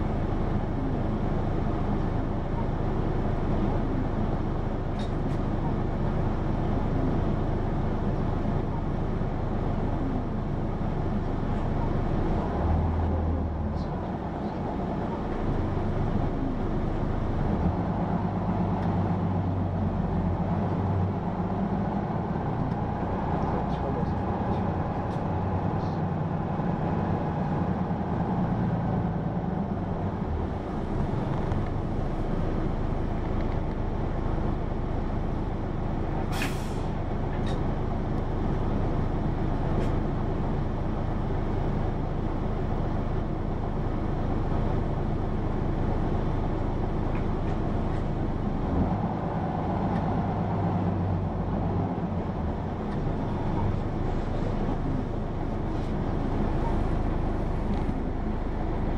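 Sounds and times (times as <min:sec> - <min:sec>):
bus engine pulling: 0:00.0 - 0:58.9
air brake hiss: 0:36.3 - 0:36.9.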